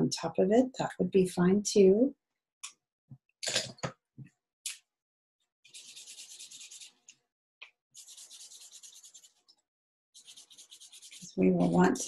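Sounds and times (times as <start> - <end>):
marker scribbling on paper: 5.7 - 7.0, 8.0 - 9.6, 10.2 - 12.0.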